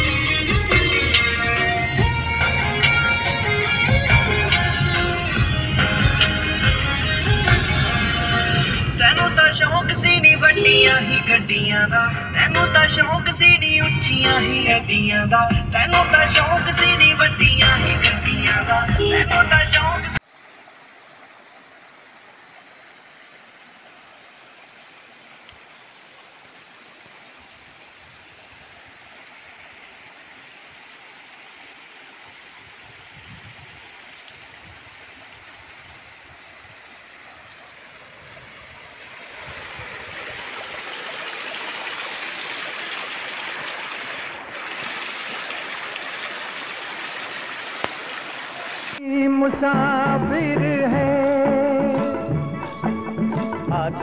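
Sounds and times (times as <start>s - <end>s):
stream rushing over rocks: 19.8s - 49.0s.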